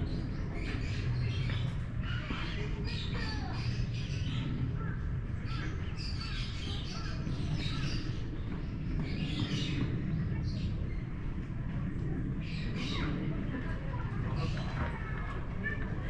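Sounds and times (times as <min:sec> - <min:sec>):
steady low hum: 0:00.0 - 0:16.0
chirping and squawking calls: 0:12.4 - 0:15.2.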